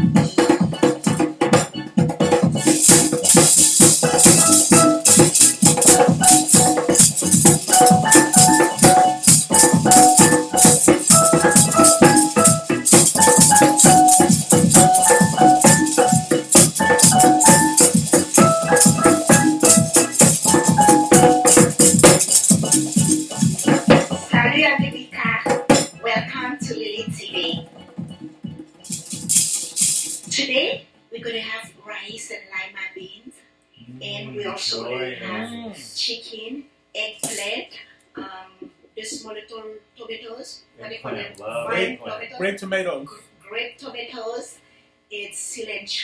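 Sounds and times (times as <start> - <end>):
djembe hand drumming: 0.0 - 24.5
maraca shaking: 2.3 - 24.4, 28.8 - 30.4, 37.2 - 37.5
simple melody in short notes: 2.5 - 24.6.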